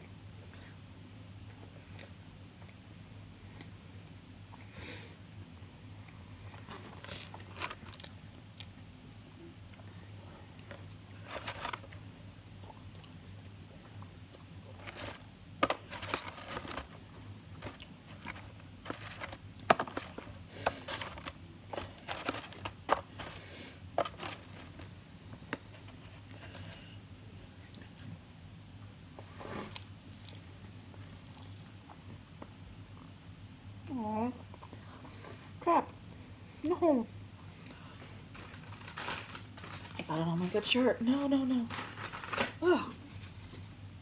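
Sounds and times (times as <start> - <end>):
steady low hum: 0.0 - 44.0
paper wrapper crinkling: 6.6 - 8.2, 11.1 - 12.0, 14.8 - 24.9, 38.3 - 40.8, 41.5 - 43.6.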